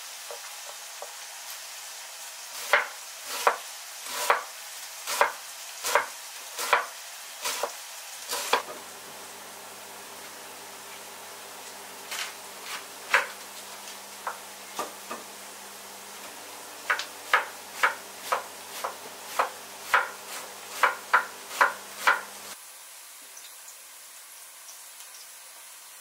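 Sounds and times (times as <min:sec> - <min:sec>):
knife chopping cabbage on board: 0:02.6 - 0:08.8, 0:12.1 - 0:13.4, 0:14.2 - 0:15.3, 0:16.8 - 0:22.3.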